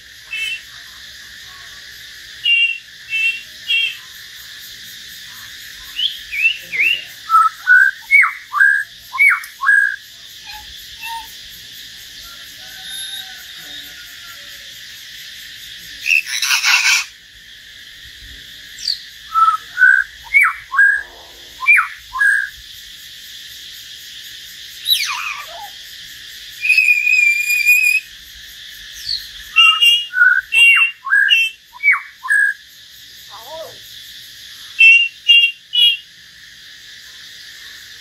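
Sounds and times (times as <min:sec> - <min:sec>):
steady high hiss: 0:00.0 - 0:38.0
bird harsh rasping call: 0:00.2 - 0:00.8, 0:02.4 - 0:04.1, 0:05.8 - 0:11.4, 0:16.0 - 0:17.2, 0:24.9 - 0:25.8, 0:29.0 - 0:32.4, 0:34.8 - 0:36.0
birds whistling: 0:00.2 - 0:00.8, 0:02.4 - 0:04.1, 0:05.8 - 0:11.4, 0:16.1 - 0:17.1, 0:18.8 - 0:22.5, 0:24.8 - 0:25.8, 0:26.6 - 0:28.1, 0:28.9 - 0:32.6, 0:34.8 - 0:36.0.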